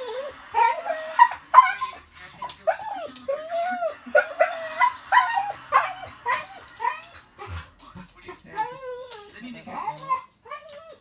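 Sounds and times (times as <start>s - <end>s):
dog whining and yipping: 0.0s - 7.6s, 8.5s - 11.0s.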